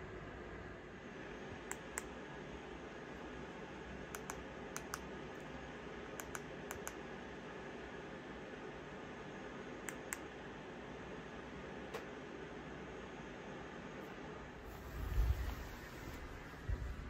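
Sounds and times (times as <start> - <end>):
remote control buttons clicking: 4.1 - 5.1, 6.2 - 7.0.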